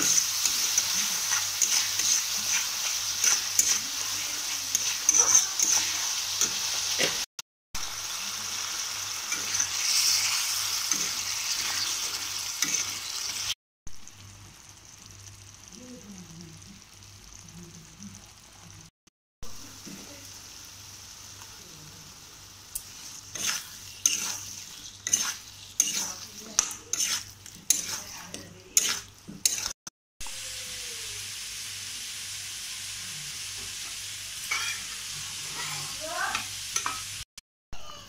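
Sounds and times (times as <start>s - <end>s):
spatula scraping pan: 0.0s - 7.3s, 9.3s - 13.3s, 22.9s - 29.8s
food sizzling in hot oil: 0.0s - 37.3s.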